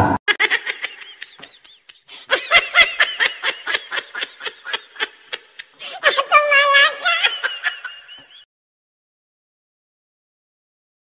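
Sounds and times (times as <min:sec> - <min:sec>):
person giggling: 0:00.3 - 0:08.2.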